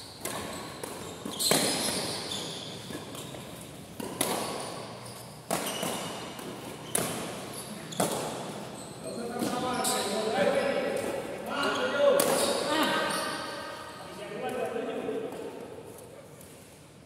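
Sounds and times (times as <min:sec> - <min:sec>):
rackets striking shuttlecock: 0:00.2 - 0:08.8, 0:12.1 - 0:12.7.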